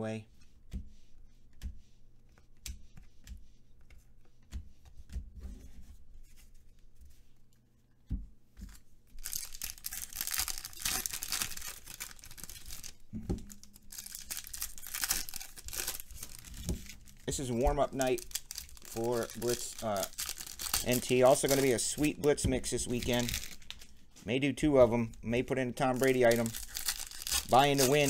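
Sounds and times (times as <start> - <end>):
foil wrappers crinkling and tearing: 8.7 - 24.0, 25.0 - 28.0.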